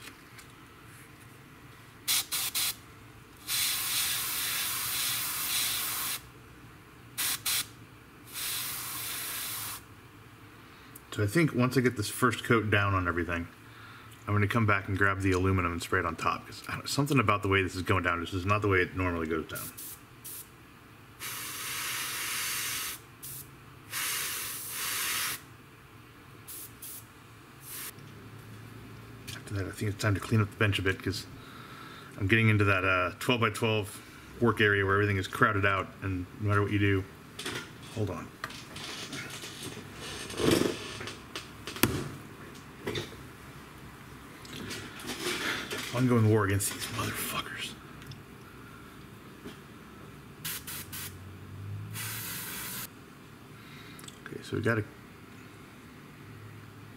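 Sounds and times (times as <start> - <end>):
airbrush spraying: 2.1 - 2.8, 3.4 - 6.3, 7.2 - 7.7, 8.3 - 9.9, 19.6 - 20.5, 21.2 - 25.4, 26.5 - 27.9, 50.4 - 51.2, 52.0 - 52.9.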